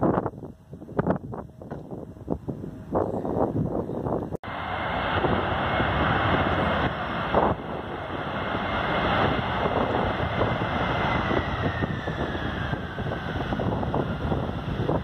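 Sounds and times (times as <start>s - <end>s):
wind buffeting microphone: 0.0s - 15.0s
jet engines roaring: 0.2s - 15.0s.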